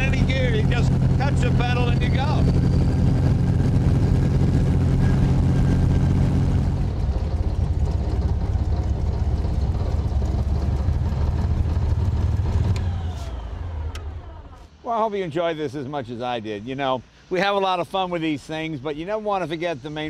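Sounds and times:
engine running at low revs: 0:00.0 - 0:14.8.

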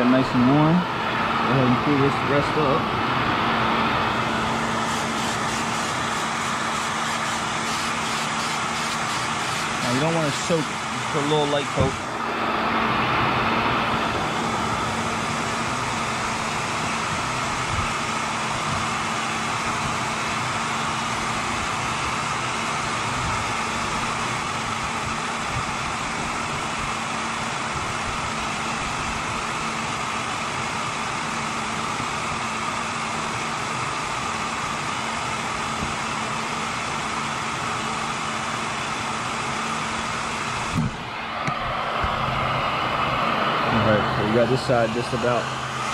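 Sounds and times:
faint motor hum: 0:00.0 - 0:45.9
heat gun blowing air: 0:04.0 - 0:12.1.

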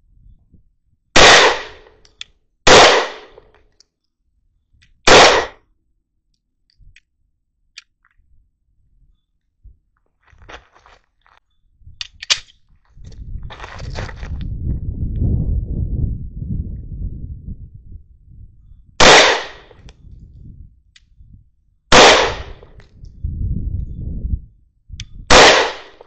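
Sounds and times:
pistol shots with echo: 0:01.2 - 0:01.9, 0:02.7 - 0:03.4, 0:05.1 - 0:05.6, 0:19.0 - 0:19.7, 0:21.9 - 0:22.7, 0:25.3 - 0:26.0.

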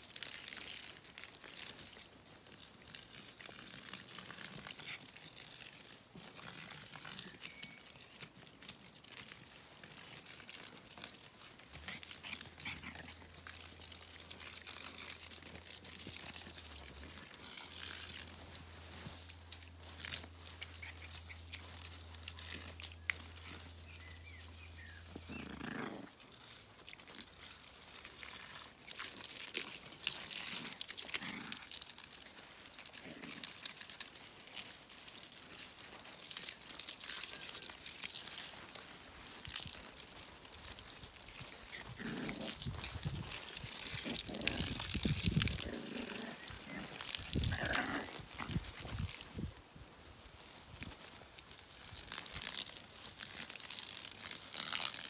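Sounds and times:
puppy grunting and growling: 0:11.7 - 0:18.2, 0:25.1 - 0:26.3, 0:30.5 - 0:31.8, 0:41.6 - 0:49.0.

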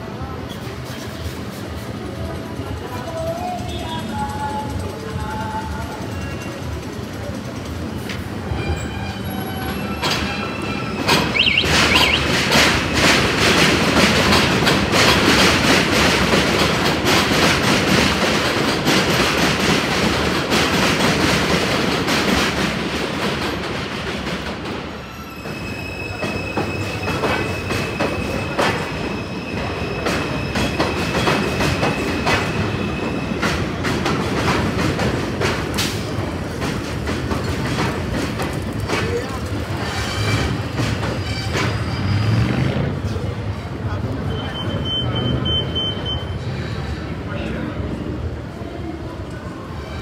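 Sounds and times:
train rumbling on elevated track: 0:00.0 - 0:50.0
wheels clattering over rail joints: 0:29.7 - 0:43.3.

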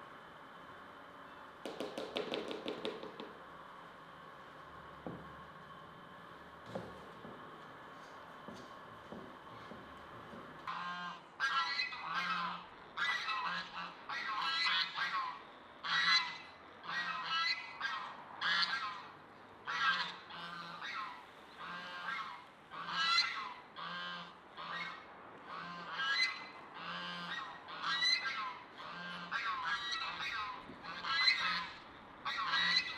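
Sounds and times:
geese honking: 0:19.7 - 0:32.9.

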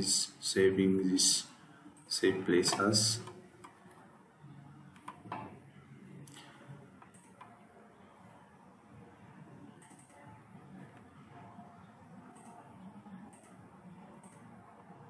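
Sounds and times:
low background noise: 0:00.0 - 0:15.0
computer mouse clicks: 0:04.9 - 0:05.5, 0:06.2 - 0:07.6, 0:09.8 - 0:10.3, 0:12.3 - 0:14.5.

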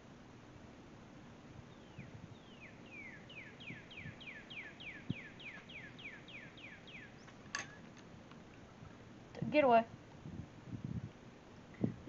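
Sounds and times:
bird whistling song: 0:01.7 - 0:07.9.

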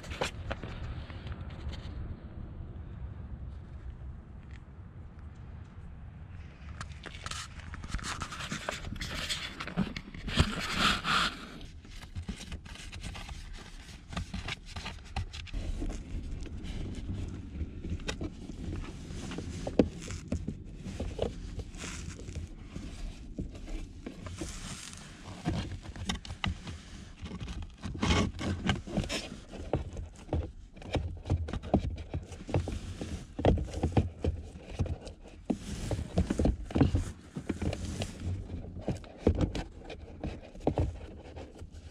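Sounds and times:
scraping and rustling of filter: 0:06.7 - 0:41.9.

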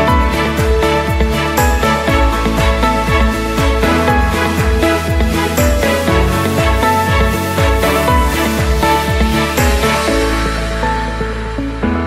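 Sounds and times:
electronic background music: 0:00.0 - 0:12.0.

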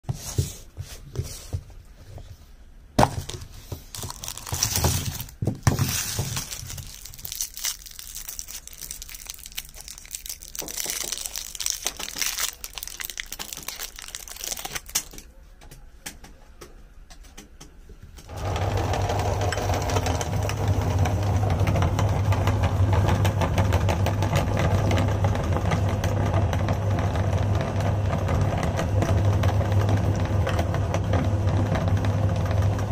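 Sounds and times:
foil wrappers crinkling: 0:03.2 - 0:15.3
electric meat grinder running: 0:18.3 - 0:32.9.

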